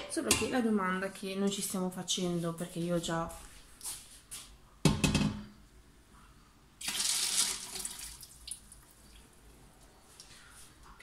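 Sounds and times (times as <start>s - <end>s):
water pouring into bowl: 6.8s - 9.3s.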